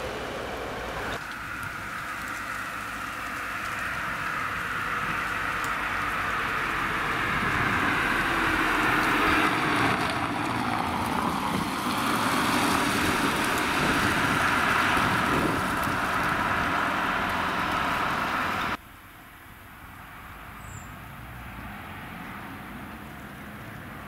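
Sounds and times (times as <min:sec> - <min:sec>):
car driving past on tarmac: 0:00.0 - 0:18.8
street background noise: 0:00.0 - 0:24.0
wind on microphone: 0:06.9 - 0:18.8.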